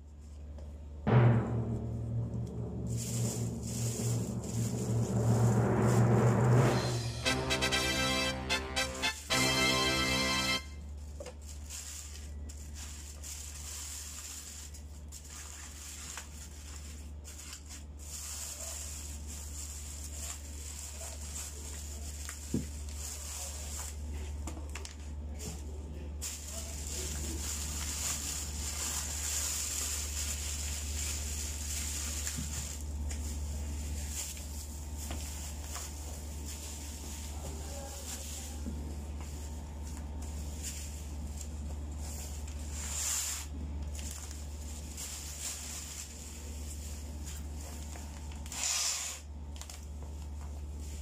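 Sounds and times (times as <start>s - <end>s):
steady low hum: 1.1s - 7.2s
plastic bags rustling: 2.8s - 5.3s, 9.3s - 24.2s, 26.2s - 48.4s
aluminium foil crinkling: 2.9s - 5.1s, 10.8s - 25.5s, 26.2s - 51.0s.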